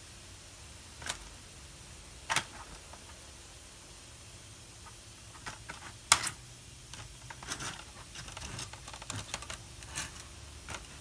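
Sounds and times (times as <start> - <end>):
plastic cracking: 6.9 - 11.0.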